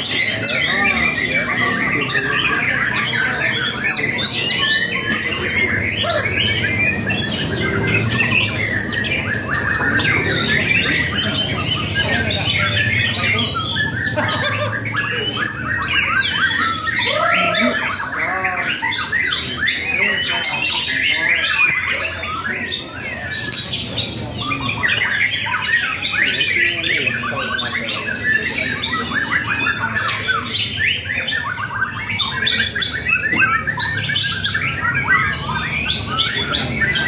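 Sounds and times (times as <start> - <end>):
songbirds chorus: 0.0 - 37.0.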